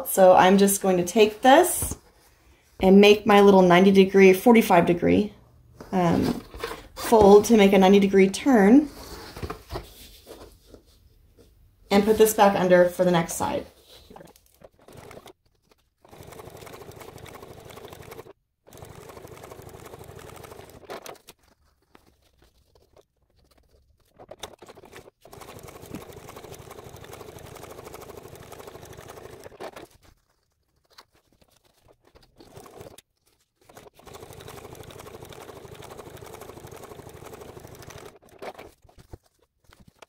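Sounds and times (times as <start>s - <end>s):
sewing machine stitching: 13.4s - 21.4s, 23.4s - 39.2s.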